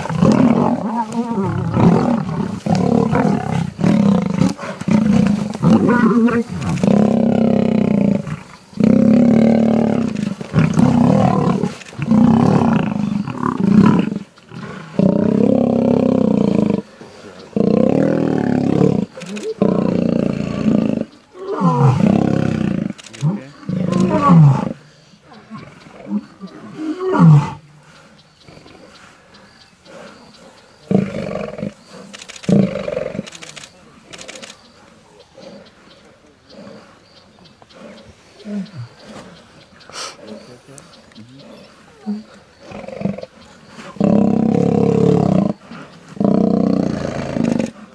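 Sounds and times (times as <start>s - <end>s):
lions' long low calls: 0.0s - 47.9s.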